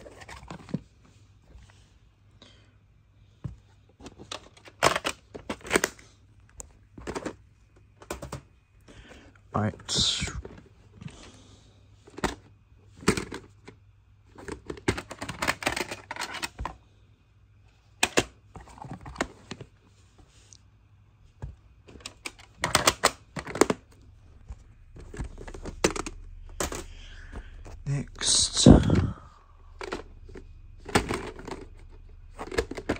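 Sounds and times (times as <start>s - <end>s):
plastic cases clicking and clattering: 0.0s - 1.1s, 3.9s - 8.6s, 12.0s - 16.8s, 17.9s - 19.8s, 21.4s - 32.9s.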